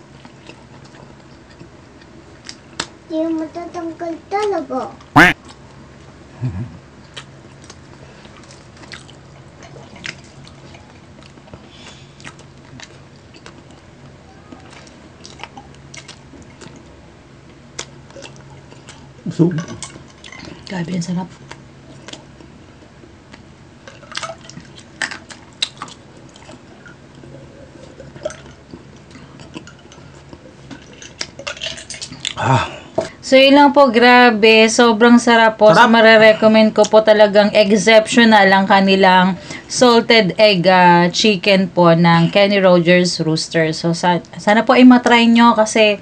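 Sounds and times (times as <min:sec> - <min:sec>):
faint steady hum: 0:00.0 - 0:46.0
chewing: 0:00.2 - 0:02.9, 0:07.0 - 0:16.9, 0:17.5 - 0:20.7, 0:21.3 - 0:22.6, 0:23.3 - 0:32.4
person gulping a drink: 0:23.9 - 0:33.1.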